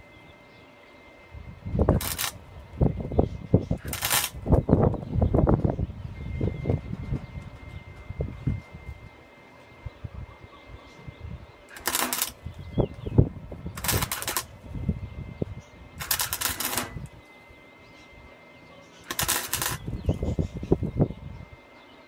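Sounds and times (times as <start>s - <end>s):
welder arc crackling: 1.8s - 2.5s, 3.7s - 5.0s, 11.7s - 12.6s, 13.7s - 14.7s, 16.0s - 17.2s, 19.0s - 20.8s.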